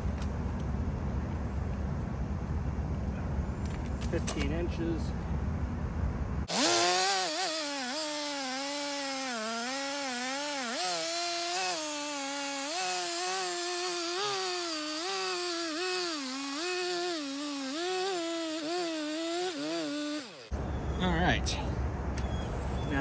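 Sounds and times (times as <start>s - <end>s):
chainsaw cutting log: 6.5s - 20.5s.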